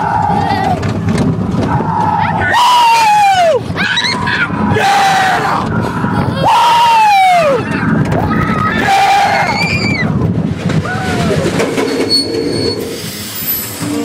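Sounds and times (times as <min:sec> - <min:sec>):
people shouting and whooping: 0:00.0 - 0:01.0, 0:01.6 - 0:10.2, 0:10.8 - 0:11.6
loud rough rumbling: 0:00.0 - 0:14.0.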